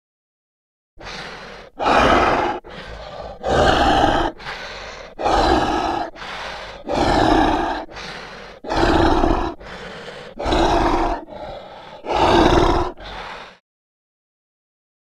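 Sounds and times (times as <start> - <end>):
zombie growling: 1.0 - 13.6.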